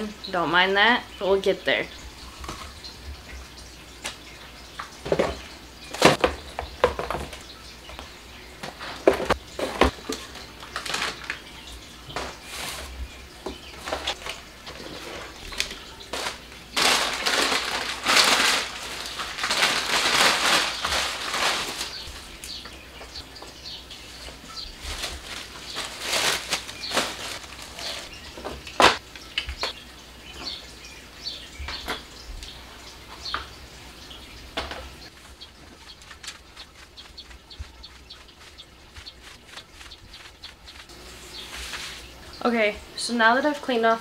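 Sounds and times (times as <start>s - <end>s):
plastic packaging rustling: 8.8s - 11.5s, 13.8s - 22.6s, 24.2s - 29.0s.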